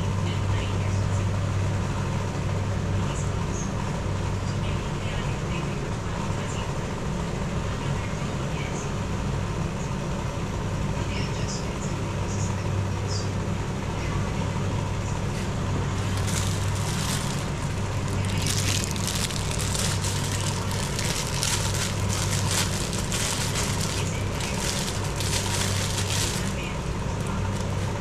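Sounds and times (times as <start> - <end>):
packaging crackling and crinkling: 16.0 - 28.0.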